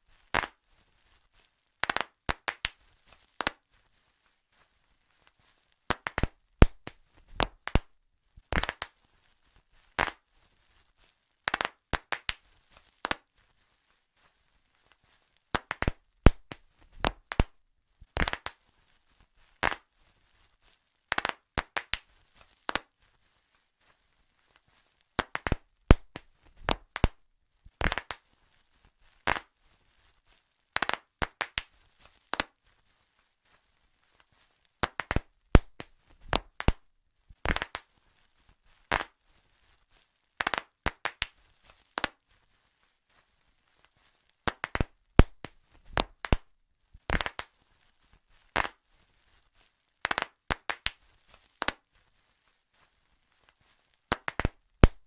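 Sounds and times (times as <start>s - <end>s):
bubble wrap popping: 0.0s - 55.0s.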